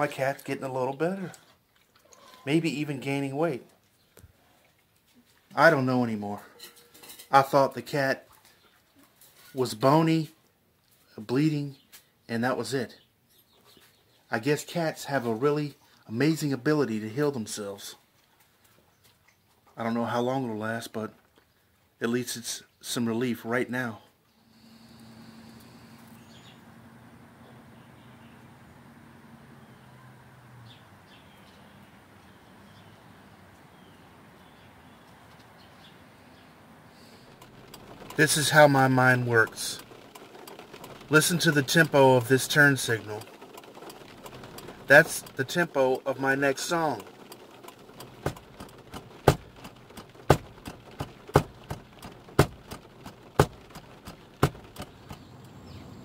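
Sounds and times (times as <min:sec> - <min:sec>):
faint birds chirping: 0:00.0 - 0:56.0
turn-signal flasher clicking: 0:37.2 - 0:45.5, 0:46.4 - 0:55.6.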